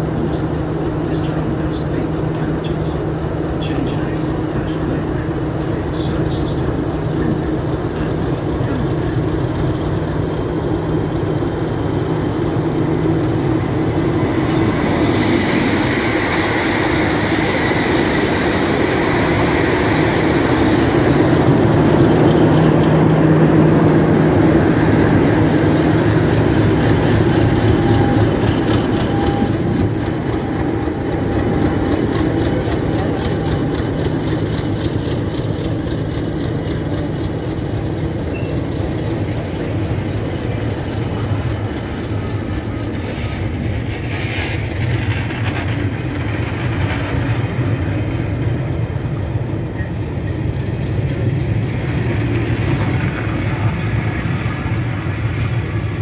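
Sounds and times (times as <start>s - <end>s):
diesel locomotive engine: 0.0s - 56.0s
high whine: 9.6s - 35.2s.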